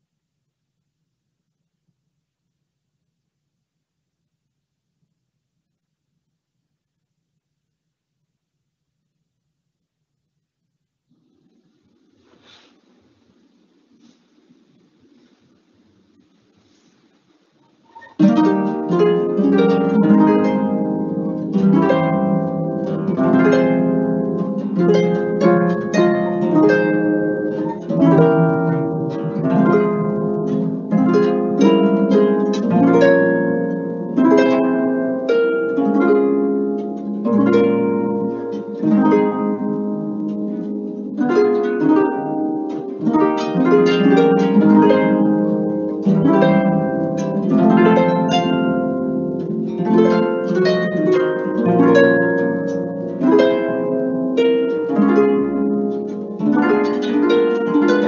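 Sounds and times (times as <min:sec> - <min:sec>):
harp playing: 0:18.0 - 0:58.0.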